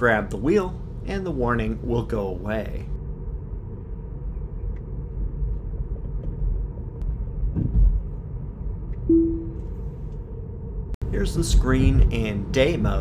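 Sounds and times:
short steady tone: 9.1 - 9.8.

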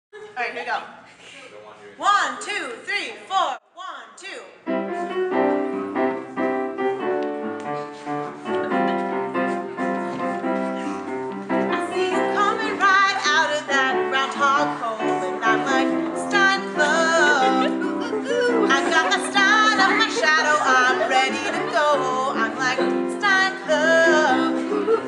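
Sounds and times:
piano chords: 4.6 - 25.0
person singing with vibrato: 11.7 - 25.0.

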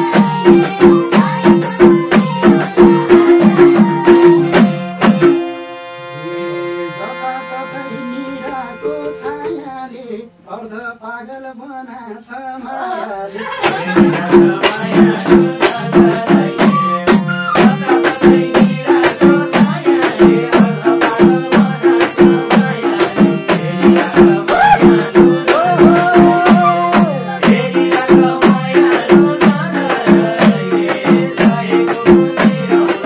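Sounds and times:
hand drums beating fast rhythm: 0.0 - 5.5, 13.3 - 33.0
wavering melody line: 5.0 - 9.6, 26.3 - 27.4.

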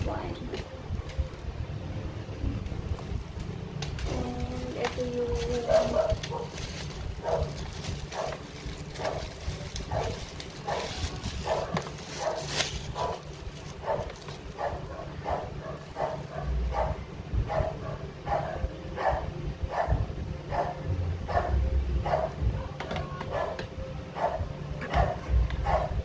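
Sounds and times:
plastic wrapping crinkling: 3.0 - 14.7
dog barking: 5.7 - 6.6, 7.2 - 8.4, 9.0 - 9.3, 9.9 - 13.2, 13.8 - 22.4, 23.3 - 23.6, 24.2 - 26.0.

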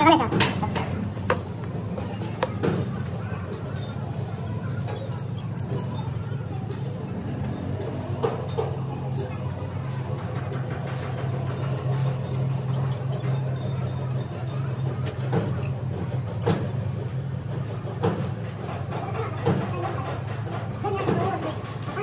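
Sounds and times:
workshop machinery humming: 0.0 - 22.0.

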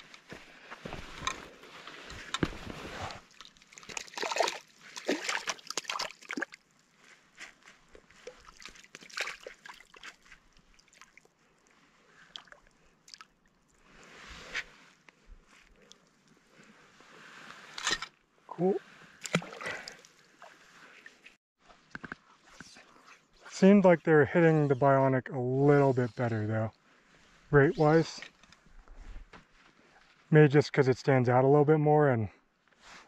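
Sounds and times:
water sloshing and splashing: 1.8 - 7.1, 7.8 - 11.4, 19.2 - 21.4
water dripping and trickling: 3.2 - 6.8, 7.9 - 11.3, 12.2 - 13.8.

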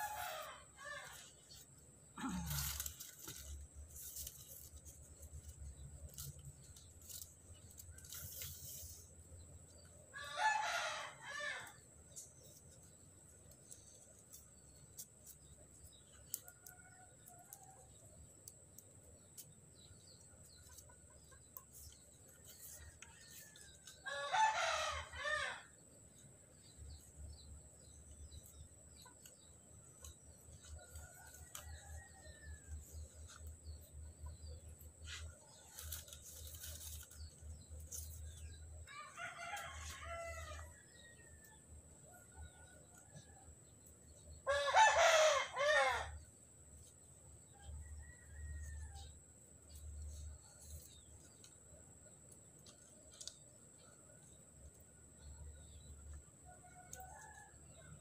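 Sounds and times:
rooster crowing: 0.0 - 1.2, 10.2 - 11.8, 23.2 - 25.7, 38.9 - 41.6, 44.5 - 46.2.

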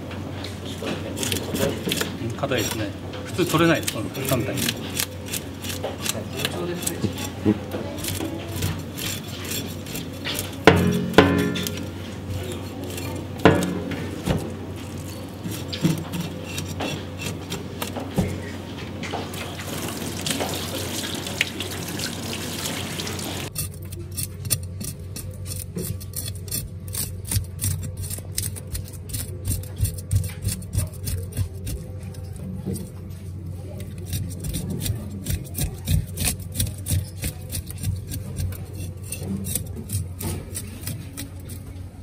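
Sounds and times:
knife scraping fish scales: 1.0 - 18.6, 23.4 - 42.0
sharp knocks: 10.7 - 11.9
water running in steel sink: 19.2 - 23.5.

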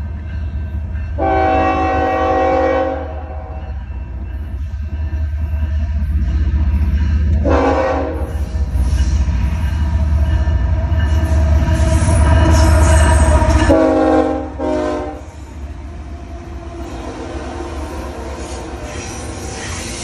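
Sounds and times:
diesel locomotive engines: 0.0 - 20.0
train cars rolling on rails: 0.0 - 20.0
train air horn blasts: 1.2 - 3.7, 7.4 - 8.4, 13.1 - 15.4.

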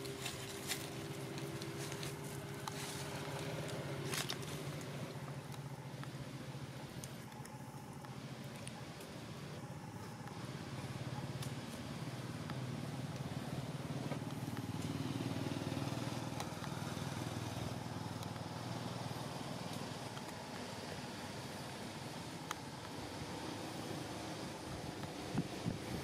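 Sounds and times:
passing vehicle engine hum: 0.0 - 26.0.

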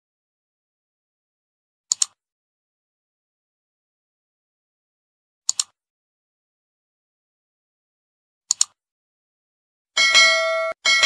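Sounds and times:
mouse double click: 1.9 - 2.2, 5.5 - 5.8, 8.5 - 8.8
notification bell ding: 10.0 - 11.0.

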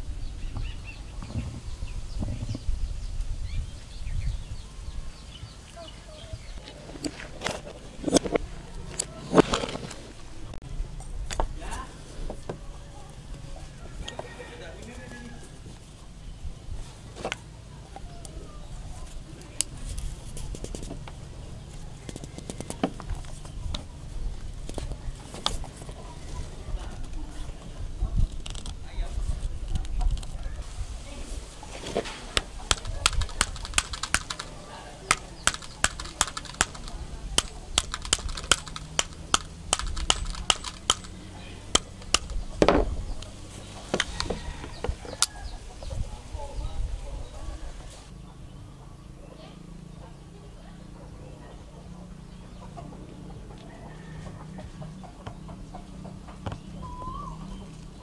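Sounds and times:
plastic scraping against metal: 6.6 - 10.2
small plastic clicks: 32.6 - 43.3
dull handling knock: 41.8 - 43.0.

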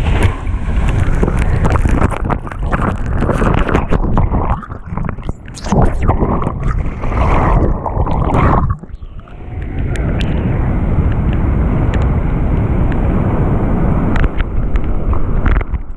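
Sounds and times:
whitewater rushing and splashing: 0.0 - 11.1
wind buffeting microphone: 0.0 - 15.9.

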